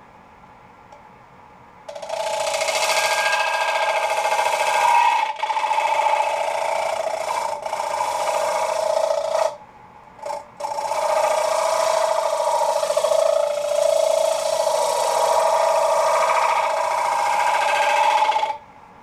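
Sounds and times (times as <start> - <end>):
lathe gouge rasping wood: 1.9 - 9.6, 10.2 - 18.6.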